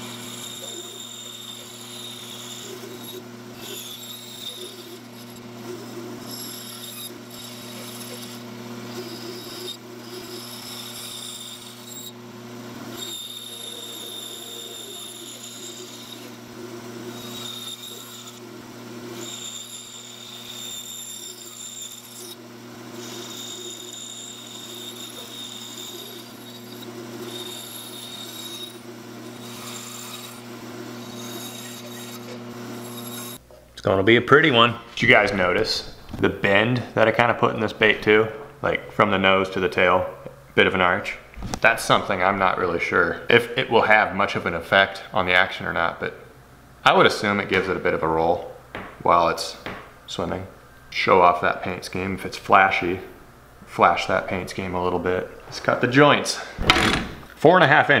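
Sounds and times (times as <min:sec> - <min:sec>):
bandsaw motor hum: 0:00.0 - 0:39.8
bandsaw blade cutting wood whine: 0:00.0 - 0:40.0.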